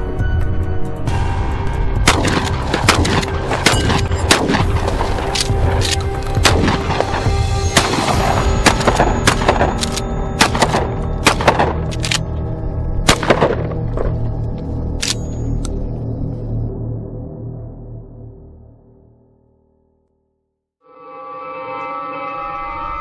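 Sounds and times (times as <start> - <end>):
background music: 0.0 - 20.0
shotgun shots: 2.0 - 5.4, 6.4 - 12.0, 13.1 - 13.8.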